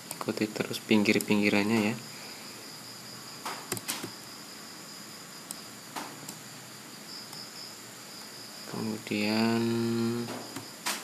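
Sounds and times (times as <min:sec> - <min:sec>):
high-pitched background hiss: 0:00.0 - 0:11.0
computer mouse clicks: 0:03.4 - 0:04.1.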